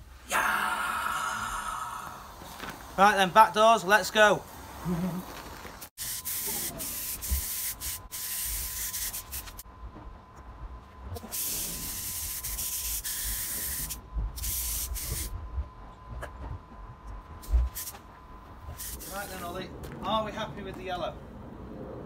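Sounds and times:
spray gun hissing: 6.0 - 9.6, 11.2 - 15.3, 18.8 - 19.4.

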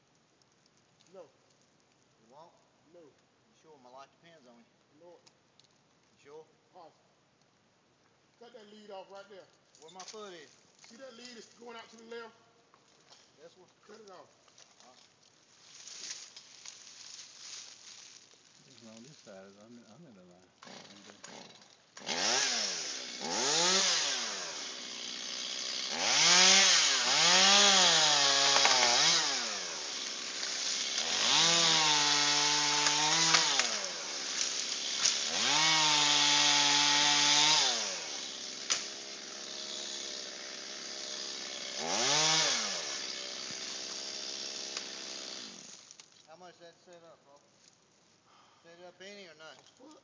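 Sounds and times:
chainsaw revving: 20.6 - 45.9.

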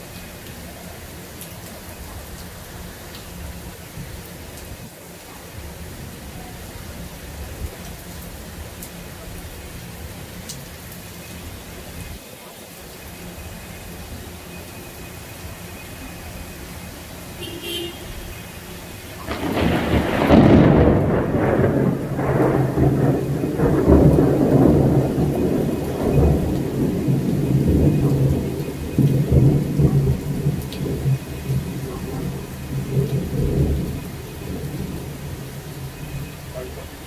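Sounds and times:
heavy rain: 0.0 - 37.0
thunder crack and rumble: 19.1 - 37.0.

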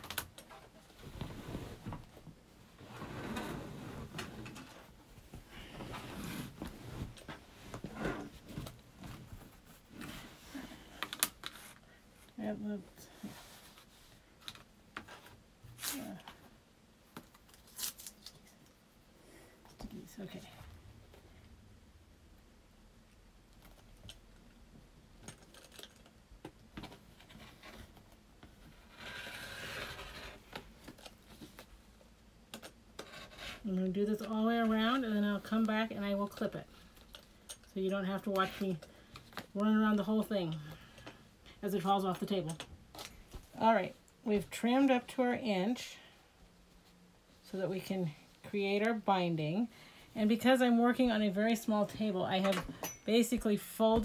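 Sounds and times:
fabric rustling and scraping: 0.5 - 11.8, 26.8 - 31.7.

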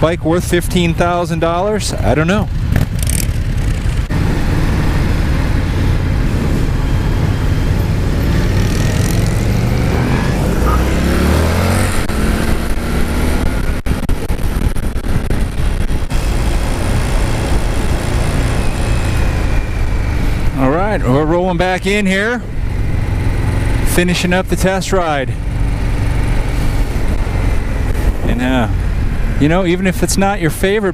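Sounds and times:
motorcycle engine running: 1.8 - 30.0
wind rush over microphone: 2.7 - 20.6, 25.6 - 29.4.

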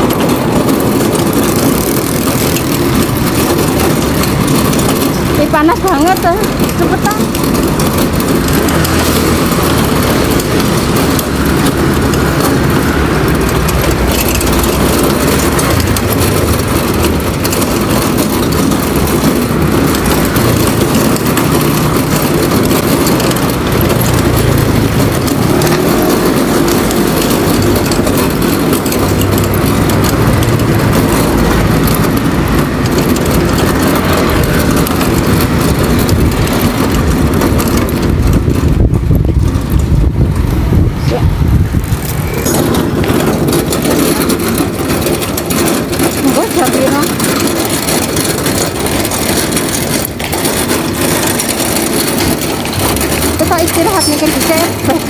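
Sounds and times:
road traffic noise: 0.0 - 55.0
wind rushing over microphone: 0.0 - 55.0.

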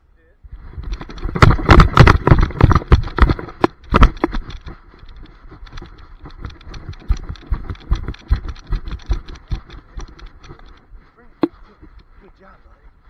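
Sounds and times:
camera harness knocks and rustling: 0.8 - 10.8.

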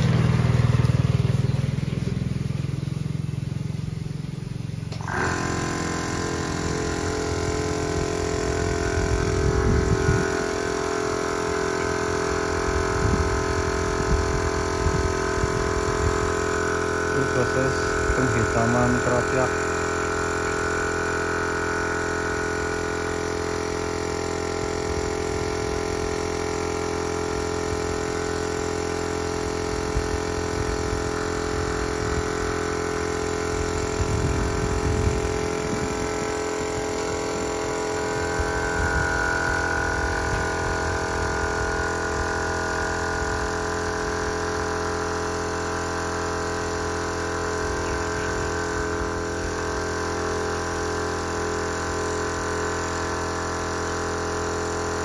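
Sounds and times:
air compressor running: 0.0 - 55.0
spray gun air hissing: 4.9 - 14.8, 35.0 - 53.0.

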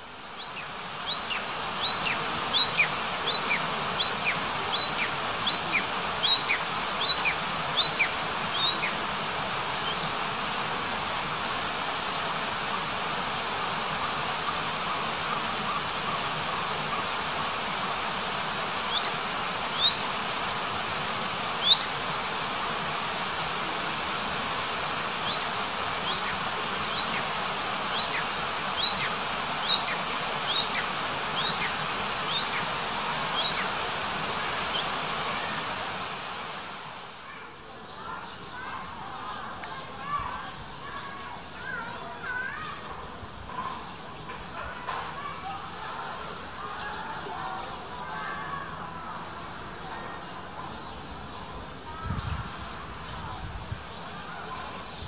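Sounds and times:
steady hiss: 0.0 - 37.3
animal high-pitched chirps: 0.4 - 8.9, 18.9 - 19.1, 19.7 - 20.1, 21.6 - 21.9, 25.2 - 27.2, 27.9 - 31.7, 32.3 - 32.6, 33.4 - 33.6.

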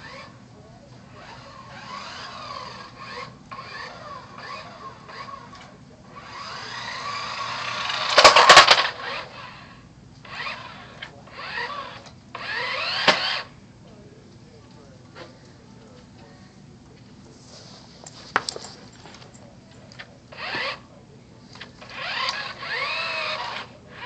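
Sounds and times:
toy car motor whining: 0.0 - 0.4, 1.1 - 13.6, 20.0 - 20.9, 21.5 - 24.0.

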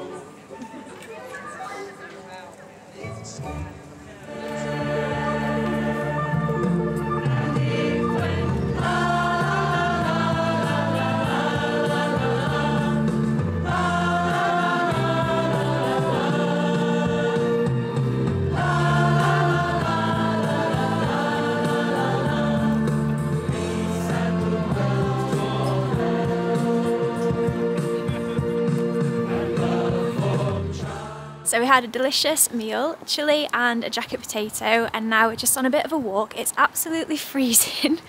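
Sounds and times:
choir singing sustained chords: 3.5 - 31.6.

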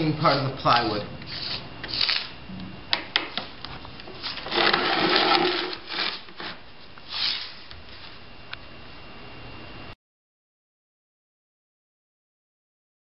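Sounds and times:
marker scratching on concrete: 0.2 - 2.3, 4.2 - 7.6.

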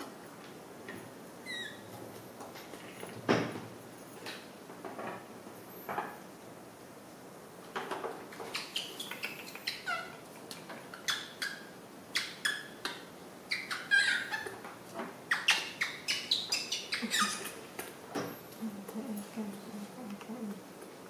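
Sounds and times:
baby monkey squeaking: 1.4 - 1.8, 8.5 - 10.1, 13.5 - 14.5, 15.3 - 17.6.

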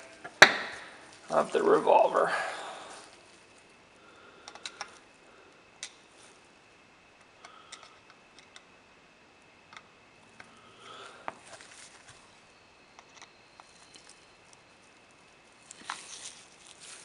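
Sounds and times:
small metallic clicks: 4.4 - 5.0, 7.2 - 8.7.

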